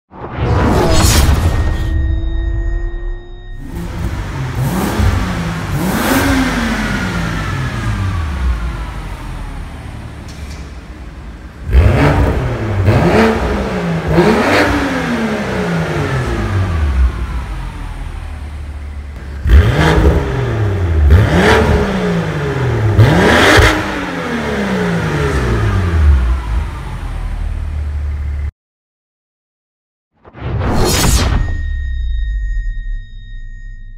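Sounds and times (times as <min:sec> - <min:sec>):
car engine revving: 0:03.6 - 0:28.4.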